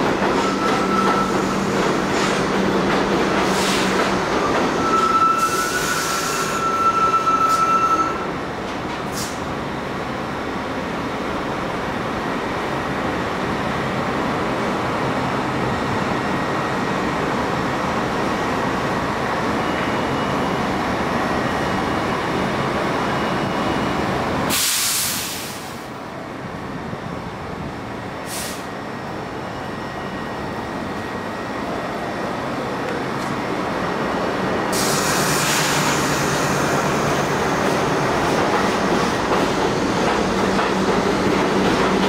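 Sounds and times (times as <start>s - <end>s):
subway train rumble: 0.0s - 42.0s
train motors and wheels: 0.0s - 42.0s
short bursts of hiss: 24.5s - 25.9s.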